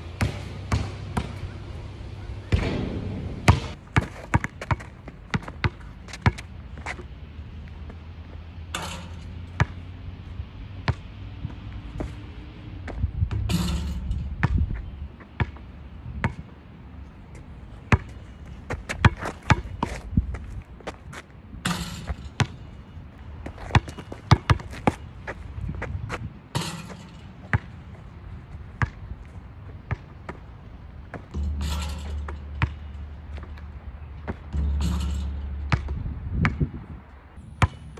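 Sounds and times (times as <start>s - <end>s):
basketball bouncing on asphalt: 0.1s - 1.7s, 2.5s - 10.0s, 10.8s - 16.6s, 17.3s - 37.9s
basketball hoop rattle: 8.7s - 9.7s, 13.4s - 14.7s, 21.6s - 22.9s, 26.5s - 27.7s, 31.2s - 36.6s.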